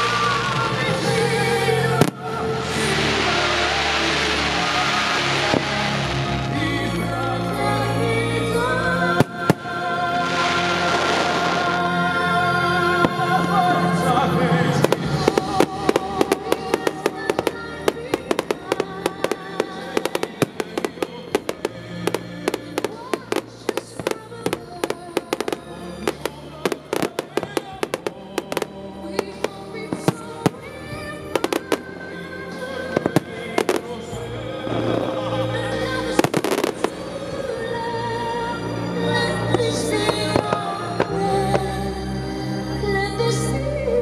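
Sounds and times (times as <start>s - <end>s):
fireworks bursting: 0.0s - 41.8s
music: 0.0s - 44.0s.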